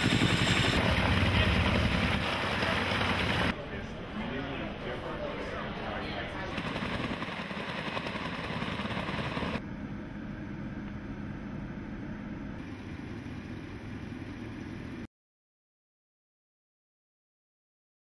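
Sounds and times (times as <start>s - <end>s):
helicopter turbine and rotor: 0.0s - 3.6s, 5.3s - 15.1s.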